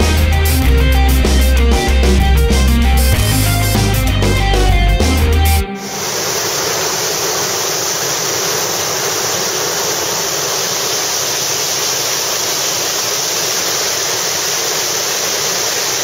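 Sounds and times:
river water rushing over rocks: 5.8 - 16.0.

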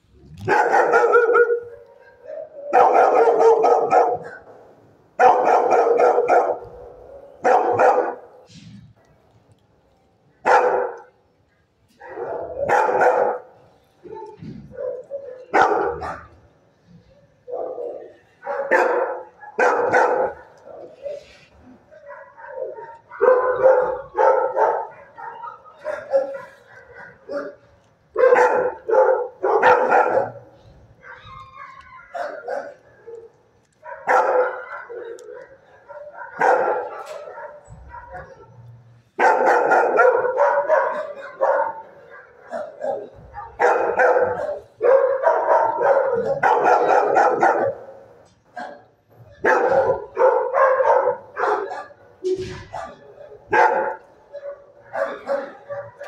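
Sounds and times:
dog barking: 0.4 - 4.6, 5.2 - 8.5, 10.4 - 11.2, 12.0 - 16.5, 17.4 - 38.6, 39.2 - 56.0.

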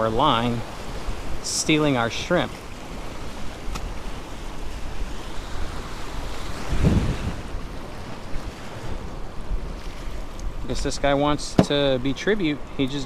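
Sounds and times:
wind buffeting microphone: 2.6 - 12.8.

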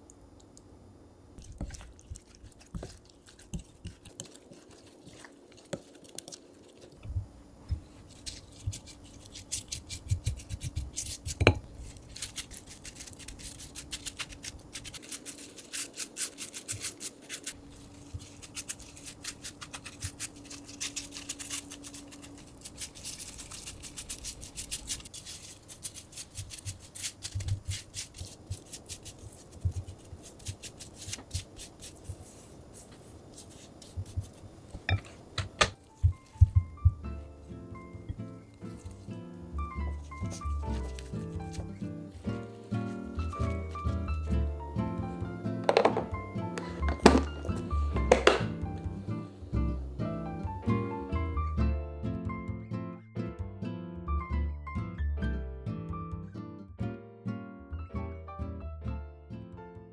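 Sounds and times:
gloved hands rustling leaves: 7.8 - 34.6, 35.8 - 45.2.

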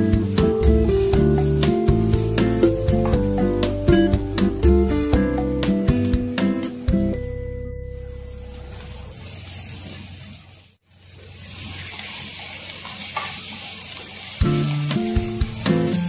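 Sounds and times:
wooden spatula stirring: 0.0 - 4.2
background music: 0.0 - 8.6
vegetables sizzling in a wok: 0.0 - 16.0.

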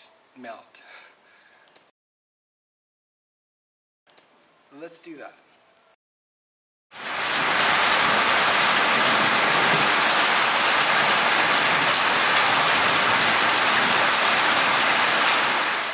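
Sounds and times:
heavy rain on concrete: 6.9 - 15.9.

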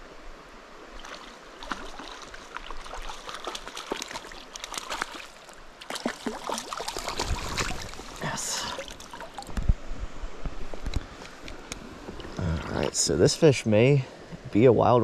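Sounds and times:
creek water washing: 0.0 - 15.0
fish splashing at water surface: 1.0 - 9.5.

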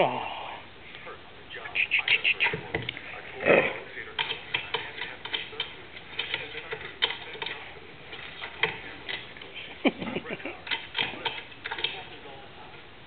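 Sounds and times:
dog paws clicking and tapping: 4.1 - 9.5, 10.5 - 12.2.

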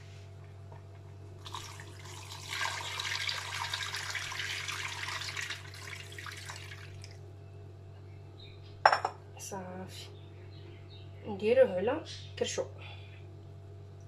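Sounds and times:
water pouring into a metal pot: 1.4 - 7.2.

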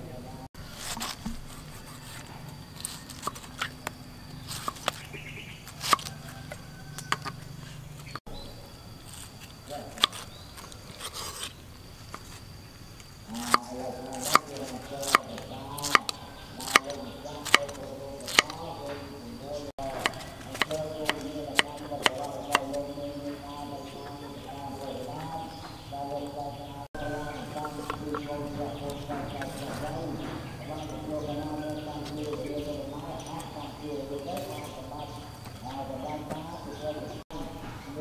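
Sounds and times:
knife chopping on wooden board: 5.7 - 7.4, 14.2 - 18.6, 19.8 - 22.8
person speaking: 13.3 - 38.0.

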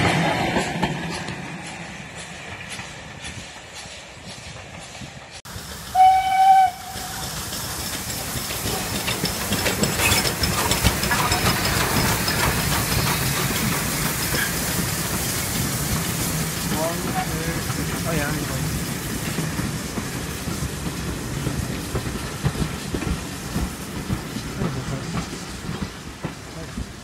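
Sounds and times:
locomotive passing with carriages: 0.0 - 27.0
train rolling: 0.0 - 27.0
steam locomotive whistle blast: 5.9 - 7.2.

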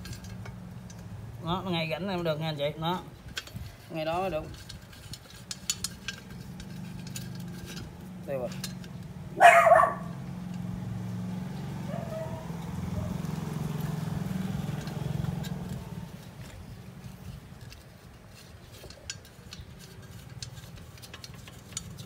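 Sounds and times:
small engine droning: 6.0 - 17.8.

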